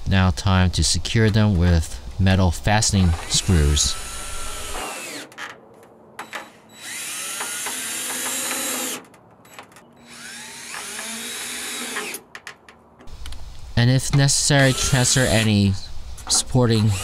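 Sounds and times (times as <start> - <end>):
cordless drill driving screws: 3.0 - 5.5, 6.2 - 12.2, 14.6 - 15.5.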